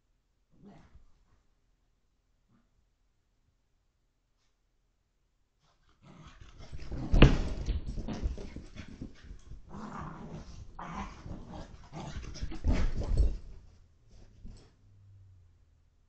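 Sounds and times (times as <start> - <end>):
thumps of dog jumping on couch: 6.4 - 13.6
puppy growling playfully: 9.6 - 13.3.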